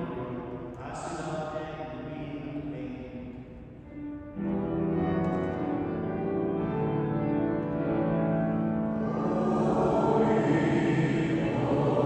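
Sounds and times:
church keyboard chords: 0:00.0 - 0:12.0.

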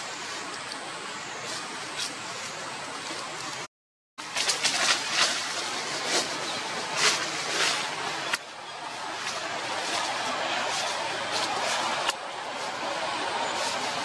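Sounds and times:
outdoor background noise: 0:00.0 - 0:14.0
dry leaves crackling and rustling: 0:04.2 - 0:14.0.

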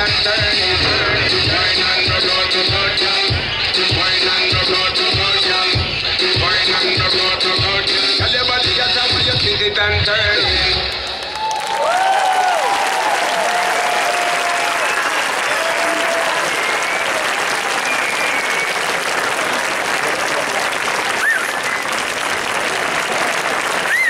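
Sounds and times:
audience applauding: 0:10.9 - 0:24.0.

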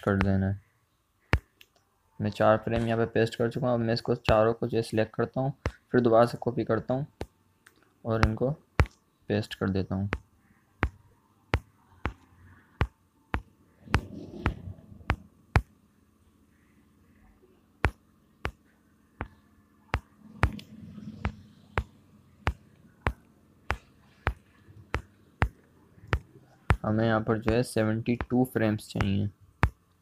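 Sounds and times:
fingertip taps on touchscreen: 0:00.0 - 0:00.4, 0:10.1 - 0:15.7, 0:17.8 - 0:26.8, 0:29.0 - 0:29.8.

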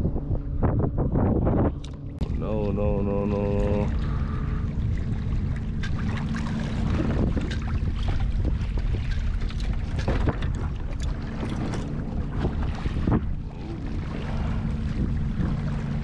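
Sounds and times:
water splashing around kayak: 0:00.0 - 0:16.0
wind buffeting microphone: 0:00.0 - 0:16.0.

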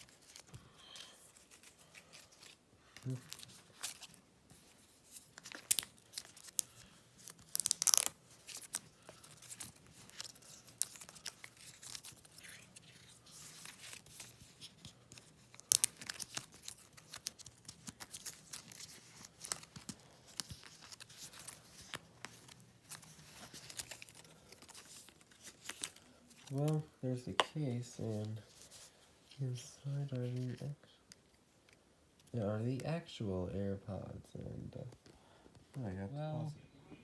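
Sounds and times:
packaging rustling and tearing: 0:00.0 - 0:28.9.

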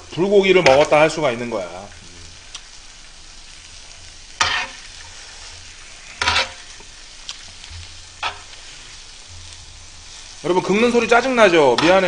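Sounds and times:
meat sizzling: 0:00.0 - 0:12.0
metal spoon scraping grill pan: 0:04.3 - 0:12.0.

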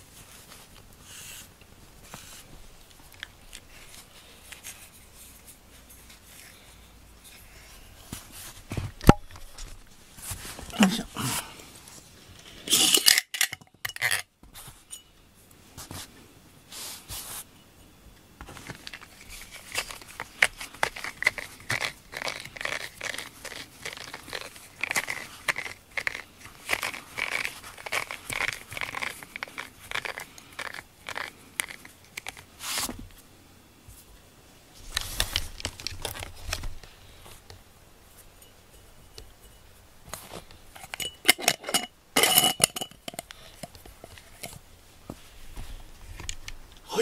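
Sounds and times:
glass jar handling: 0:12.7 - 0:14.2, 0:40.8 - 0:44.6.

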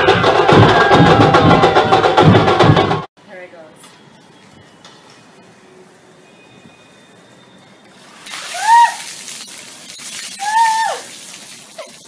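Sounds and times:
water splashing on tiled floor: 0:07.9 - 0:12.0
woman shrieking: 0:08.4 - 0:09.2, 0:10.4 - 0:11.2.

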